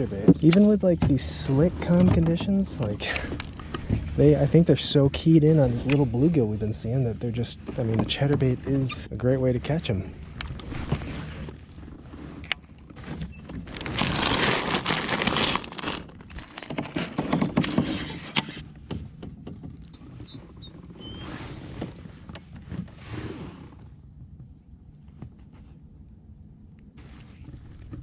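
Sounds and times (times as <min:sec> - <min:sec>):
fishing gear clicks and knocks: 0:00.0 - 0:04.3, 0:05.4 - 0:20.8, 0:27.0 - 0:28.0
rushing rustling noise: 0:09.6 - 0:12.5, 0:13.7 - 0:16.4.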